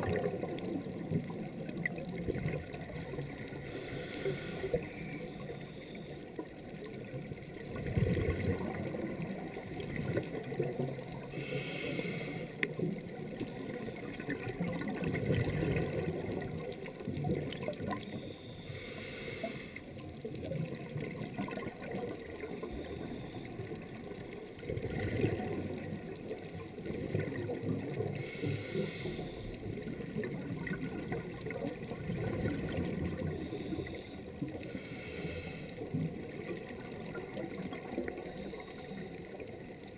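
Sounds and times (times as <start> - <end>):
bubbles gurgling and hissing: 0.0 - 39.9
diver breathing through regulator: 2.9 - 6.5, 11.2 - 12.6, 18.0 - 19.9, 22.5 - 23.6, 28.0 - 29.7, 33.2 - 36.0, 38.2 - 39.4.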